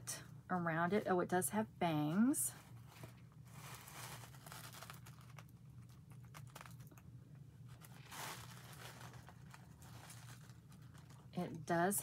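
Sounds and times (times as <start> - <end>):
wig in net rustling: 2.1 - 7.0, 7.6 - 11.7.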